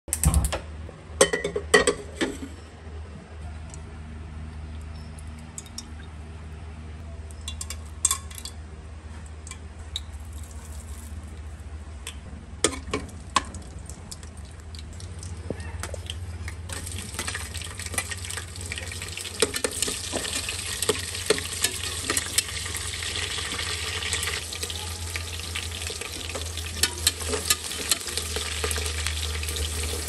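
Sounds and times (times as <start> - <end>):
spices sizzling in oil: 16.7 - 30.0
metal cookware clacking: 19.2 - 24.2, 25.9 - 30.0
gas burner lighting: 25.4 - 30.0.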